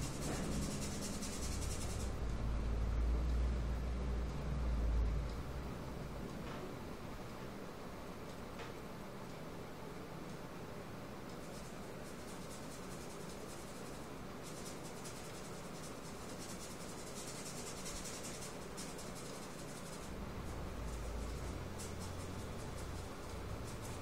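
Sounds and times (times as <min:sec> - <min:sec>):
paintbrush scratching on surface: 0:00.0 - 0:02.2, 0:11.4 - 0:20.1.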